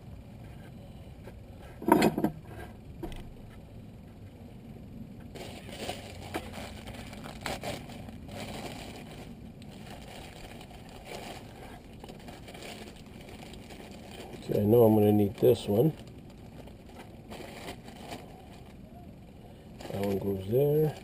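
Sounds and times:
plastic crackles: 5.2s - 19.0s, 19.7s - 21.0s
plastic bag rustling: 5.3s - 18.9s, 19.7s - 21.0s.

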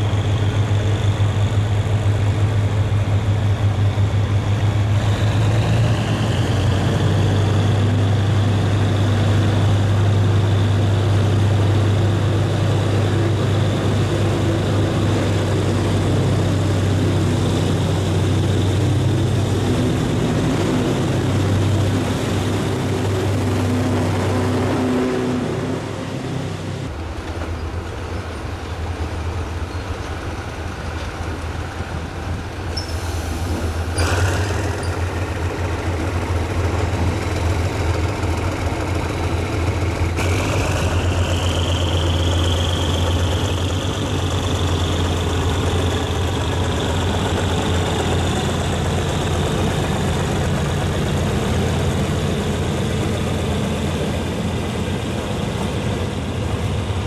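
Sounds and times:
diesel locomotive droning: 0.0s - 57.0s
high squeal: 32.7s - 35.1s.

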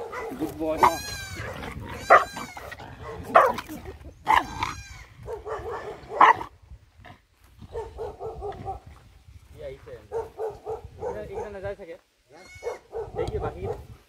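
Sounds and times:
dog yelping and crying: 0.0s - 3.7s, 12.3s - 13.1s
dog whimpering: 0.8s - 2.7s.

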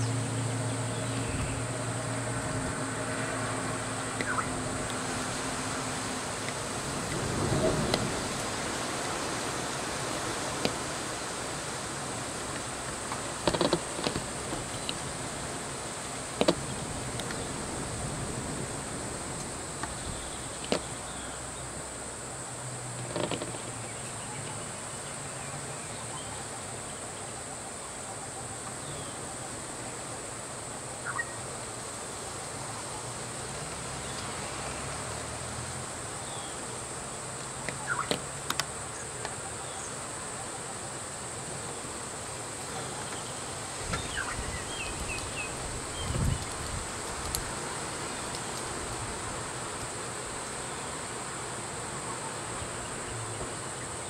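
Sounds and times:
idling vehicle engines: 0.0s - 54.0s.

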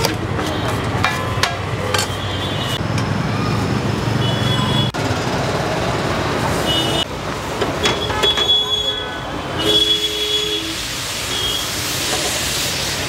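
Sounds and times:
passing vehicle engines rumbling: 0.0s - 9.6s.

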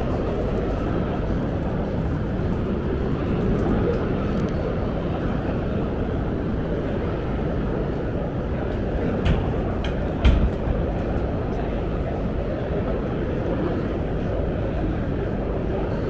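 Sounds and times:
busy indoor hall rumble: 0.0s - 16.0s.

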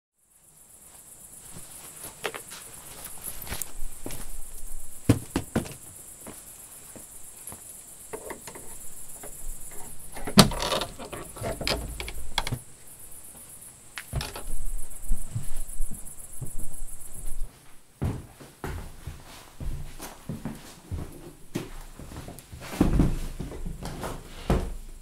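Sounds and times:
crickets chirring: 0.2s - 17.5s
clicks and knocks: 8.1s - 12.6s, 14.0s - 14.6s.

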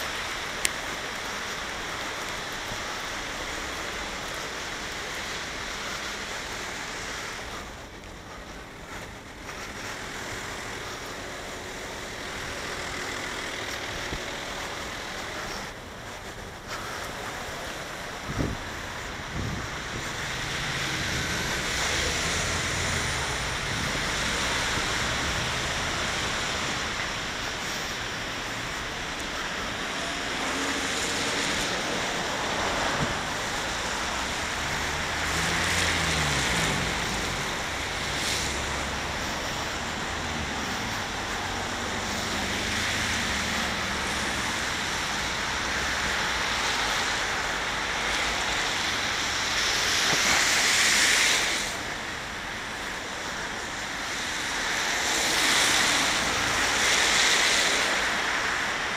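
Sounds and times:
traffic hiss on wet street: 0.0s - 58.9s
wind buffeting microphone: 16.2s - 25.3s.

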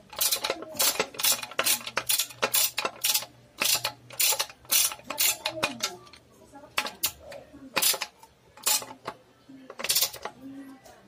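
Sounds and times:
ratchet wrench clicking: 0.1s - 5.9s, 7.8s - 9.1s.

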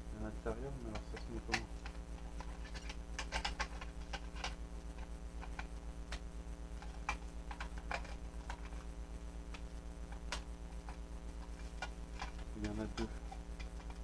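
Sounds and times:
steady low hum: 0.0s - 14.0s
plastic toy parts clicking: 0.9s - 4.6s.

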